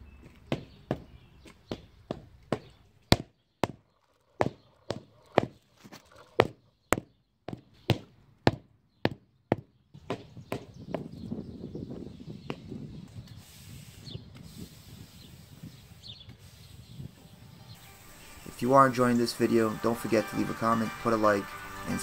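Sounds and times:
mallet knocking on concrete pavers: 0.4s - 3.8s, 4.4s - 5.6s, 6.4s - 11.1s
push broom sweeping pavers: 13.3s - 16.8s.

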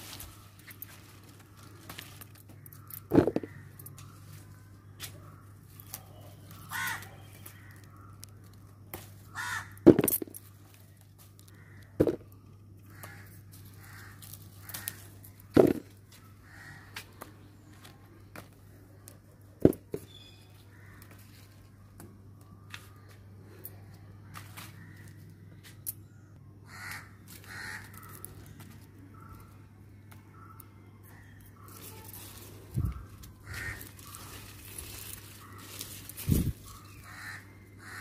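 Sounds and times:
crow-like bird cawing: 1.6s - 5.6s, 6.5s - 10.2s, 11.4s - 17.2s, 20.1s - 21.4s, 24.0s - 25.5s, 26.6s - 29.6s, 30.3s - 38.0s.

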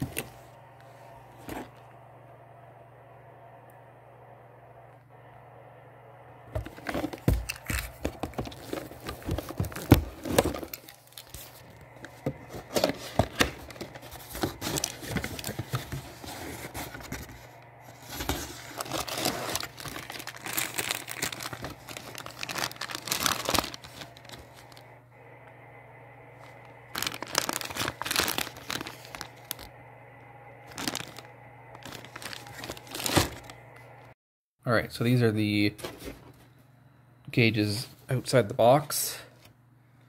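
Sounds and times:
steady low hum: 0.0s - 40.0s
packaging crinkling and tearing: 6.7s - 24.8s, 26.9s - 29.7s, 30.6s - 33.6s.

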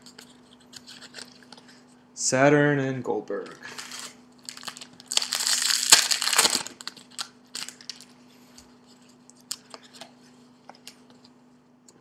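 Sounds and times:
wrapper crinkling and rustling: 3.4s - 8.2s.

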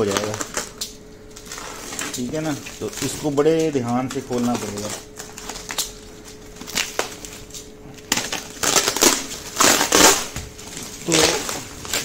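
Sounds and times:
plastic wrap crinkling and tearing: 0.0s - 12.0s.

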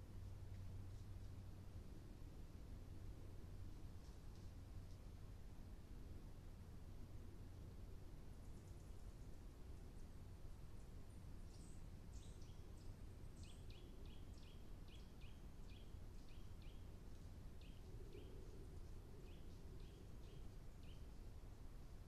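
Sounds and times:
low steady hum: 0.0s - 22.0s
small bird calling: 11.4s - 21.2s.

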